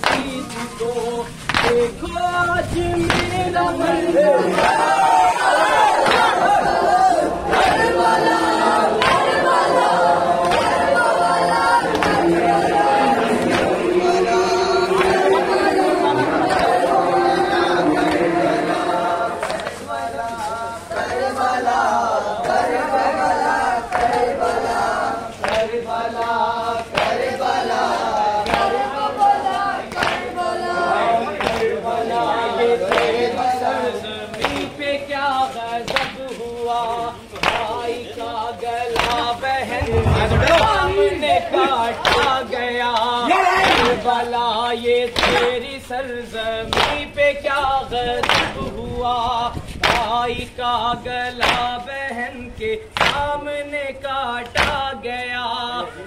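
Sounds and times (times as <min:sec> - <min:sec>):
men chanting together: 0:00.0 - 0:56.0
chest beats: 0:39.7 - 0:42.3.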